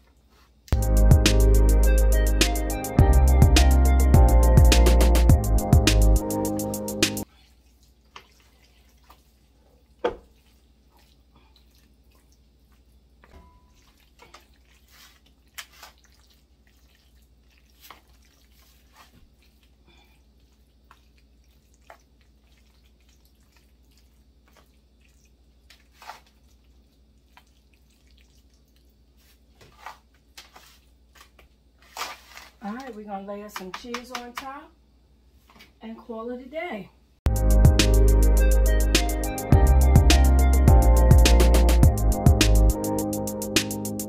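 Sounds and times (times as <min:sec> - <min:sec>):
pasta plopping and scraping: 0:07.2 - 0:33.0.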